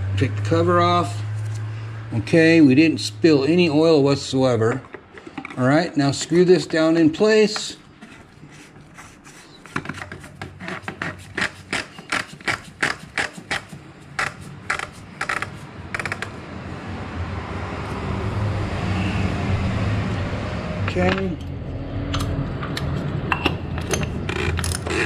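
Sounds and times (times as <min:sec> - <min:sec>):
cap clicking and scraping: 0:04.6 - 0:06.0, 0:07.5 - 0:15.6
rag rubbing on housing: 0:06.2 - 0:15.7.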